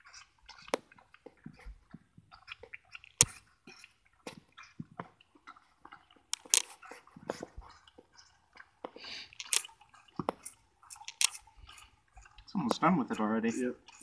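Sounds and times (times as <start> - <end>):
calf sucking from bottle: 0.0 - 14.0.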